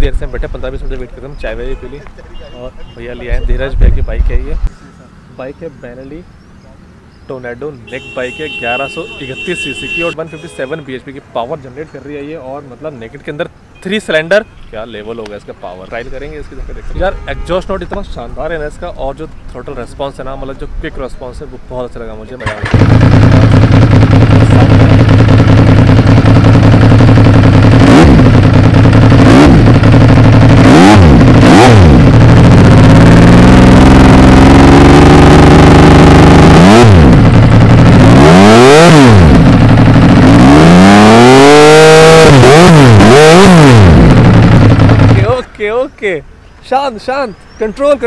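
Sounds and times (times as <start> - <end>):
motorcycle engine revving: 7.9 - 10.9, 22.4 - 45.5.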